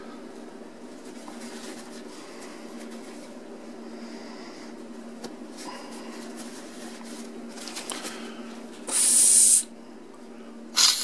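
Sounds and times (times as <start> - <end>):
steady low hum: 0.0 - 11.0
sharp hiss of blown breath: 8.9 - 9.7, 10.8 - 11.0.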